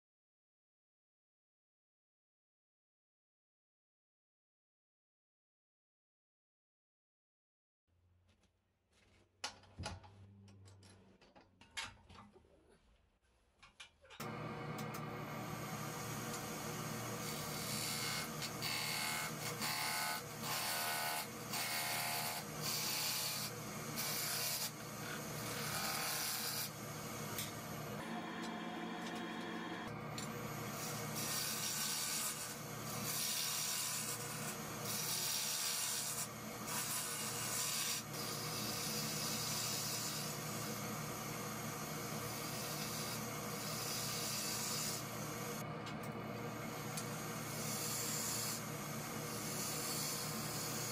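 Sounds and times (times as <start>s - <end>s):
wood lathe humming: 14.2s - 26.9s, 27.6s - 34.4s, 47.0s - 50.9s.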